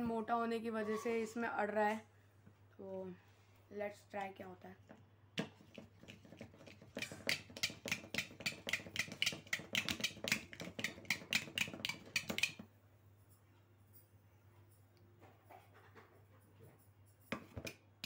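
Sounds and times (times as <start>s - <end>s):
pen tapping on metal can: 5.4s - 12.6s.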